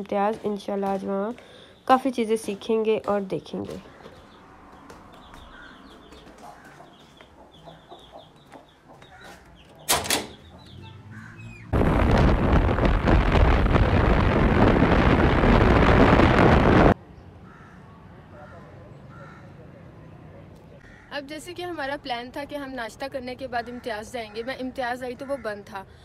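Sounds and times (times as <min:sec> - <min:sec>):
wind and road noise: 0:00.0 - 0:17.6.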